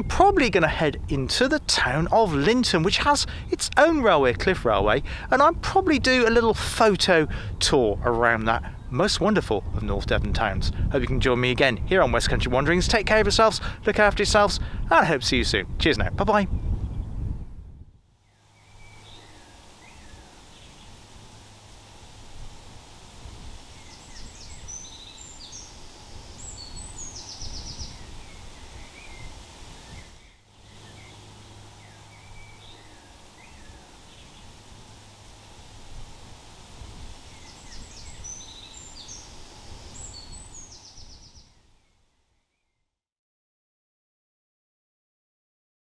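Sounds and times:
steady low rumble: 16.5 - 41.6
small birds chirping and trilling: 18.2 - 42.7.

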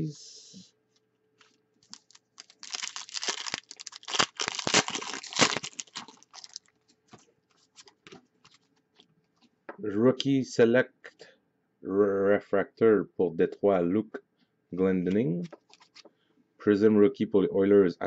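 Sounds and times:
foil wrapper tearing and crinkling: 1.8 - 6.7.

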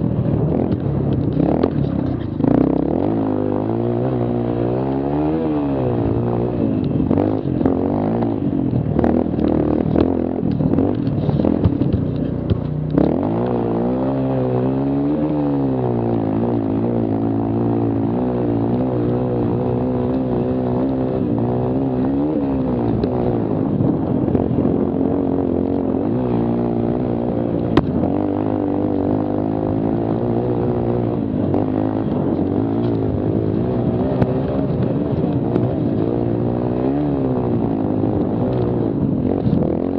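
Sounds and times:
small engine revving: 0.0 - 39.9
knocks and rattles: 8.8 - 13.1.

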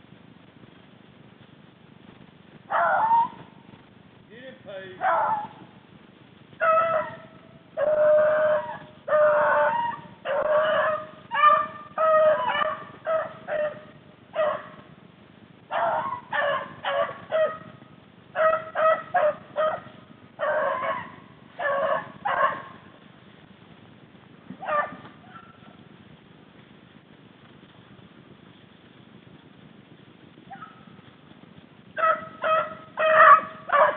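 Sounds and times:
hounds baying: 2.7 - 3.6, 5.0 - 5.7, 6.6 - 14.9, 15.7 - 23.0, 24.6 - 25.8, 32.0 - 33.9.

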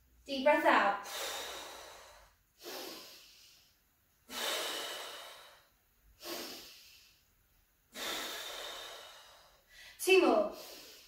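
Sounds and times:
woman breathing deeply: 1.0 - 7.3, 7.9 - 11.0.

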